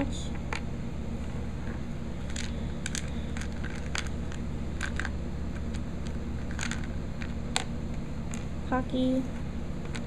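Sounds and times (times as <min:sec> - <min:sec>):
steady low hum: 0:00.0 - 0:10.0
handling clicks and rustles: 0:01.6 - 0:08.6.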